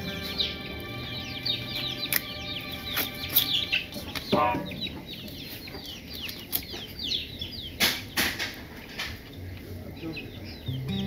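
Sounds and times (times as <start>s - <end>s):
high falling chirps: 0.0s - 5.2s
chickens clucking: 0.0s - 11.0s.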